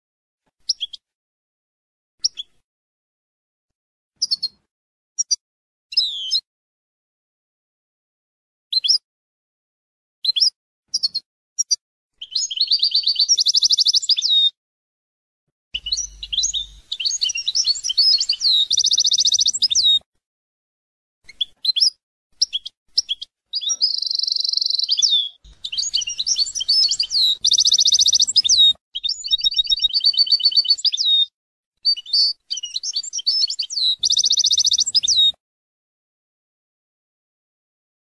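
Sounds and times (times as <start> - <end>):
goldfinch twittering song: 10.9 - 14.6, 15.8 - 20.0, 21.3 - 35.4.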